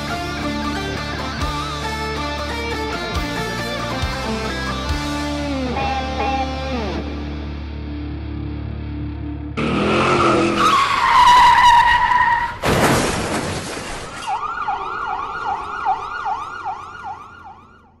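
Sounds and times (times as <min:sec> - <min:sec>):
tyres screeching: 0:09.6 - 0:12.6
loud crash: 0:12.6 - 0:14.3
emergency siren yelping: 0:14.2 - 0:18.0.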